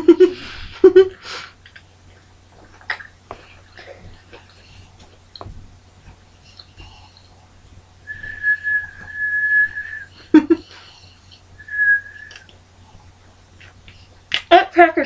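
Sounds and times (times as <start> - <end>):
person whistling: 8.1 - 10.1, 11.6 - 12.5.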